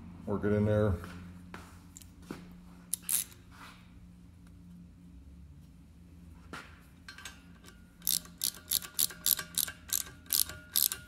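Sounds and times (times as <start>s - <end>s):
ratcheting wrench clicking: 2.9s - 3.4s, 7.1s - 11.0s.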